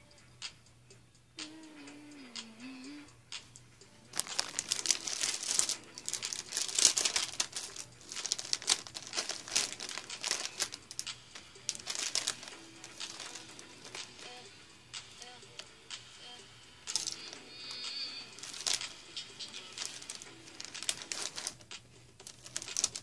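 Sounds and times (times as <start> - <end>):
plastic chip bag crinkling: 4.1 - 14.4, 16.9 - 23.0.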